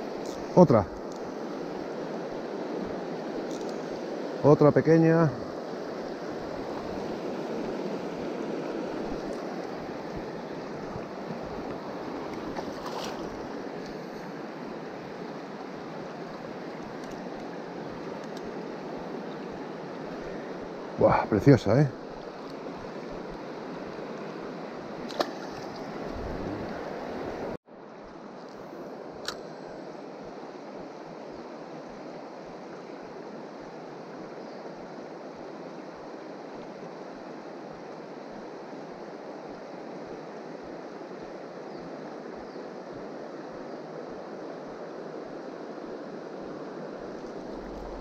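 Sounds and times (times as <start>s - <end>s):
faint clicks: 18.2s - 18.5s
river rushing over stones: 45.4s - 48.0s.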